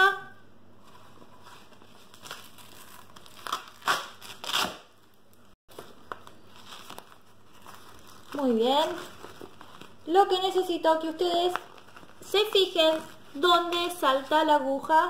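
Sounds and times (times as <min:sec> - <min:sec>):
fabric rustling: 0:00.8 - 0:04.6, 0:05.7 - 0:10.2
velcro ripping: 0:01.5 - 0:05.1.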